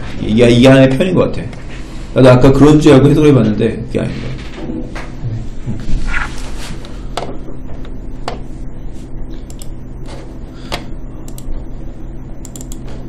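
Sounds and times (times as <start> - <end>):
steady low hum: 0.0 - 13.0
computer mouse clicks: 9.5 - 11.5, 12.4 - 12.9.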